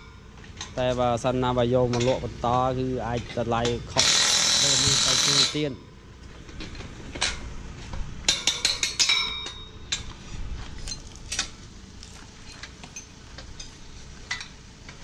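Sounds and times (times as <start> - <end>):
metal ringing: 8.2 - 10.2
metallic clinks of tools: 12.4 - 14.6.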